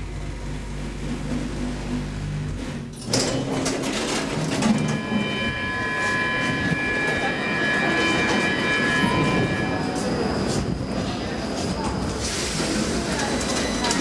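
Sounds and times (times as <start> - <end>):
metro train rumbling clatter: 0.0 - 14.0
high-pitched squeal: 4.4 - 10.8.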